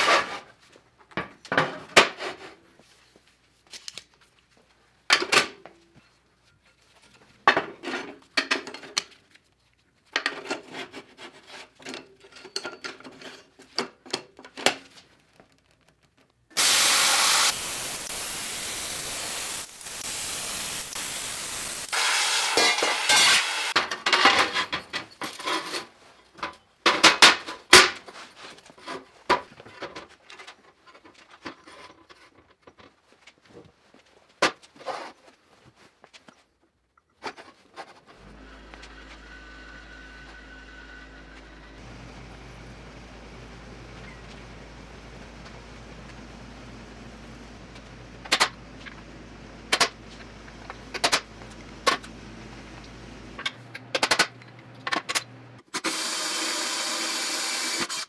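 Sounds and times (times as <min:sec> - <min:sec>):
steady rushing hiss: 0:16.6 - 0:23.8.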